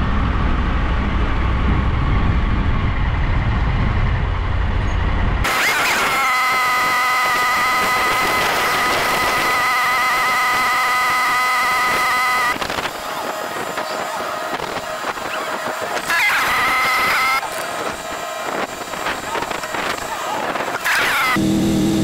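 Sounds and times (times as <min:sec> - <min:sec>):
motorcycle engine running: 0:21.4 - 0:22.0.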